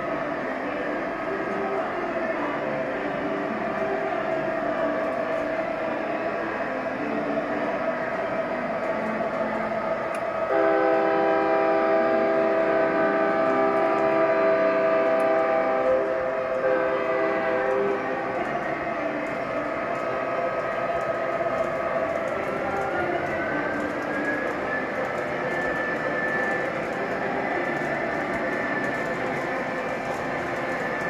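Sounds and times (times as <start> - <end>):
model locomotive running sound: 0.0 - 31.0
multi-note train horn chord: 10.4 - 18.0.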